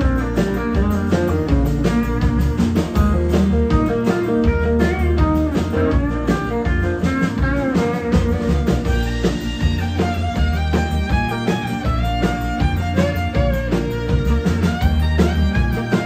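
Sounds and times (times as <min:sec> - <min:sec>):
country band playing: 0:00.0 - 0:16.0
electric guitar lead: 0:00.0 - 0:16.0.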